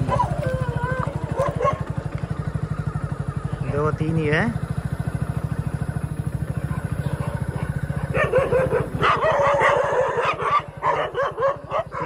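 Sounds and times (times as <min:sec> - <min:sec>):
dogs barking and yelping: 0:00.0 - 0:02.3, 0:06.5 - 0:12.0.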